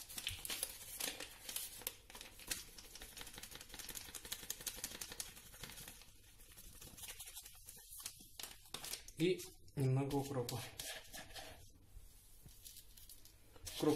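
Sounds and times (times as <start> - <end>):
pepper sachet shaken and tapped: 0.0 - 10.6
paper rustling: 0.0 - 11.7, 12.4 - 13.9.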